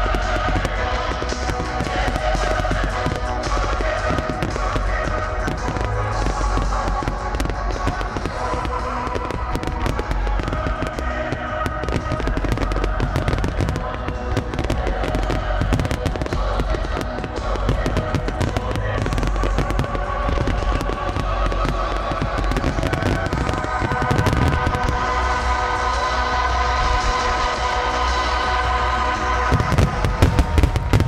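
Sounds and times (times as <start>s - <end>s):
fireworks bangs and crackles: 0.0s - 31.0s
music: 0.0s - 31.0s.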